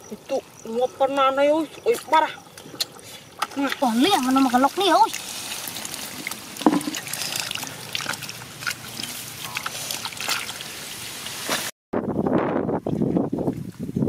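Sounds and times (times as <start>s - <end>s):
sloshing in muddy water: 0.0s - 11.7s
heavy low sloshing: 0.4s - 11.3s.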